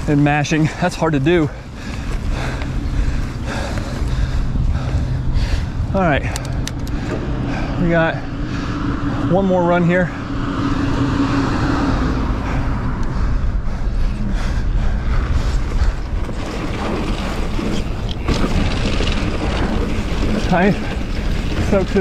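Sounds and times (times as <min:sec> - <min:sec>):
wind rushing over microphone: 0:00.0 - 0:22.0
bike clattering over bumps: 0:15.0 - 0:22.0
tyres rolling over dirt: 0:15.1 - 0:22.0.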